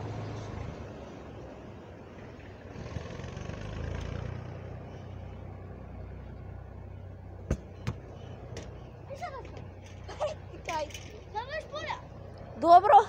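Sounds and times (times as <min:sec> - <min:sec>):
football kick thumps: 0:07.5 - 0:08.7.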